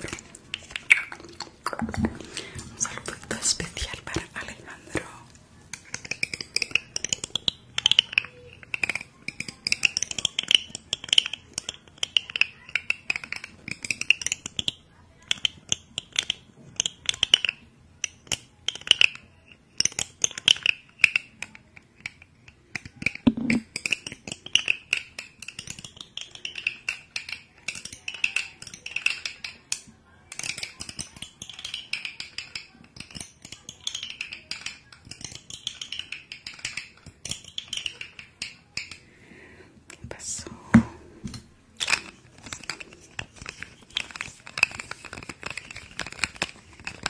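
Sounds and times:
mouth clicks and smacks: 0.0 - 5.2
breathy wordless whispering: 39.1 - 41.2.

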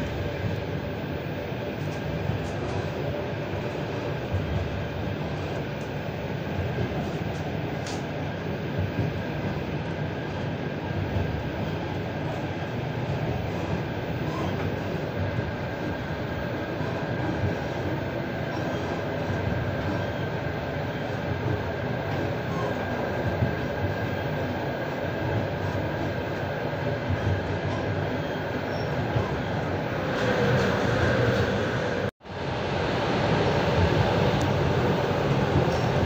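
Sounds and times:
train wheels rumbling on rail: 0.0 - 36.0.

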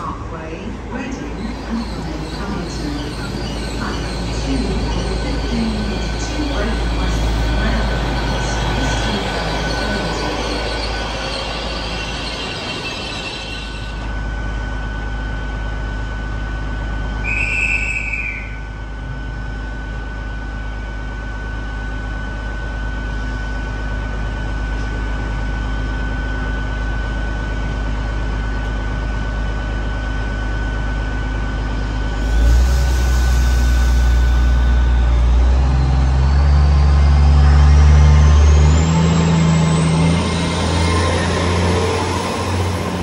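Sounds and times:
high engine whine: 0.0 - 43.0
train diesel engines rumbling: 0.0 - 43.0.

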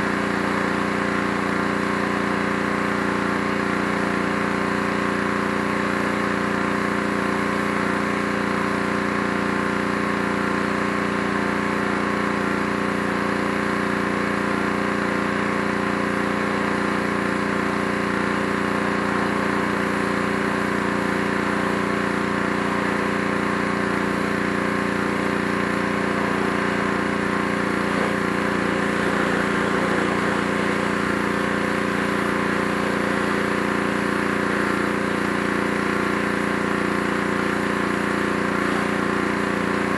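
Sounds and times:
pressure washer motor humming: 0.0 - 39.9
water jet hissing on wood: 27.4 - 33.2.

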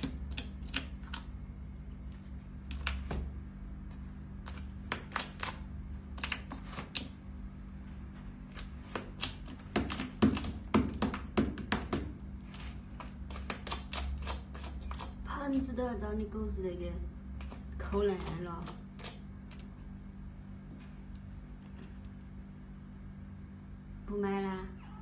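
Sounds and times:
cat scratching in litter tray: 12.5 - 15.3.

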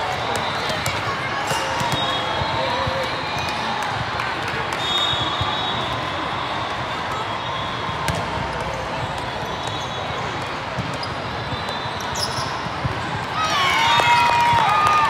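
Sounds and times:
murmur of voices: 0.0 - 13.6
volleyballs thudding and bouncing: 7.9 - 13.4.

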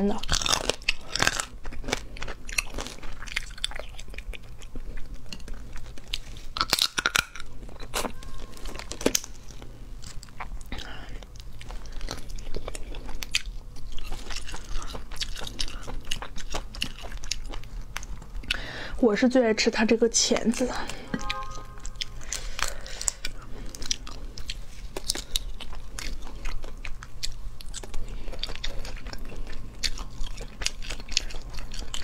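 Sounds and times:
chewing: 0.0 - 18.7, 20.4 - 32.0
crayfish shells cracking: 0.2 - 4.2, 6.5 - 12.1.

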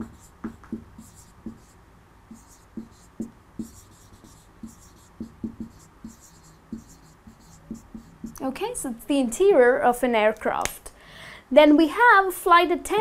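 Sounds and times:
marker pen writing on whiteboard: 0.0 - 8.5.

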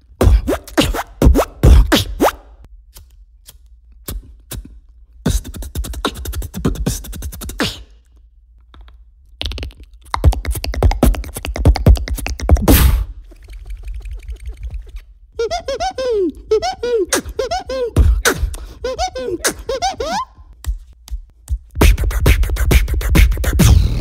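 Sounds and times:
beatboxer mouth clicks and hisses: 0.2 - 2.4, 3.0 - 8.1, 9.4 - 15.1, 17.0 - 19.7, 20.7 - 24.0
rapid mouth clicks and pops: 3.0 - 15.1, 18.0 - 18.7.

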